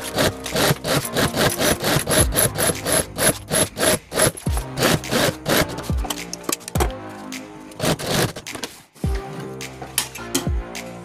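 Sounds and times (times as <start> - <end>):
sewing machine stitching: 0.0 - 5.9, 7.8 - 8.4.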